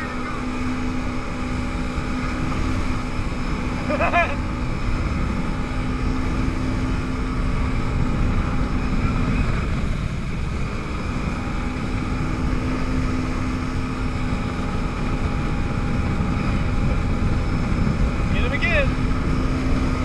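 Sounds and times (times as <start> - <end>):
jet ski engine running: 0.0 - 20.0
wind on microphone: 0.0 - 20.0.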